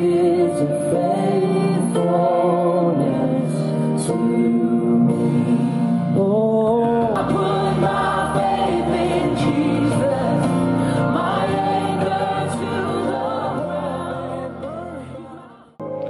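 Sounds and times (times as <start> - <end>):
backing worship music: 0.0 - 16.0
man singing: 1.8 - 7.4.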